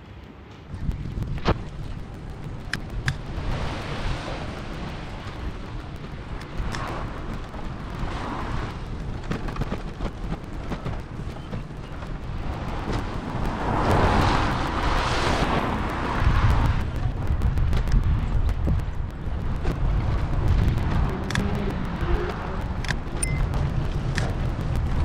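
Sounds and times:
road noise: 0.0s - 25.0s
wind rumbling on microphone: 0.6s - 25.0s
vehicle passing: 12.2s - 25.0s.

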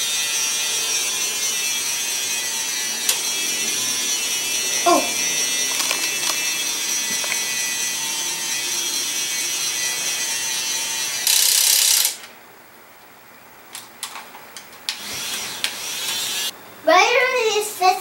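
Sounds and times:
toy motor whining: 0.0s - 12.2s, 14.9s - 16.5s.

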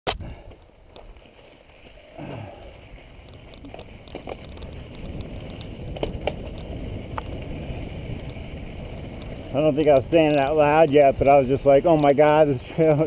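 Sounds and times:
bike knocking and rattling: 0.3s - 13.0s
bike rolling over rocky trail: 0.4s - 13.0s.

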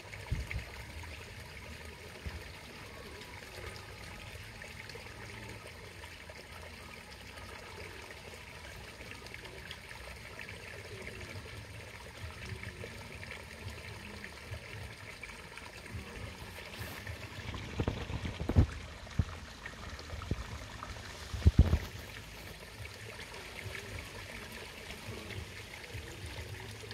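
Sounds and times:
trickle of running water: 0.0s - 26.9s
dull thumps and bumps: 21.3s - 22.0s.

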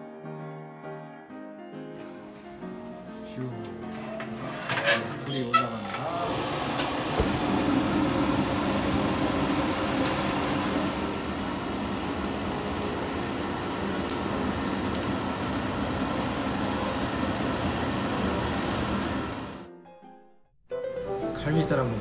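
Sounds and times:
charcoal igniter mechanical hum: 3.4s - 19.7s.

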